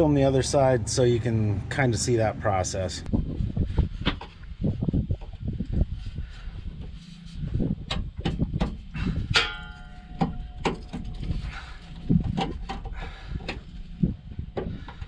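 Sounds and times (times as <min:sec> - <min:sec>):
pry bar clanking on metal: 0:08.0 - 0:11.2
metallic ringing: 0:08.9 - 0:14.4.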